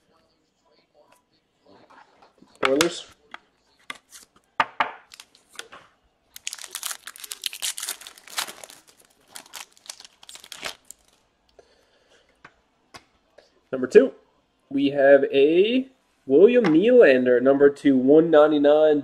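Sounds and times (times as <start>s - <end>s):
wrapper tearing and crinkling: 5.1s - 5.5s, 6.3s - 11.2s.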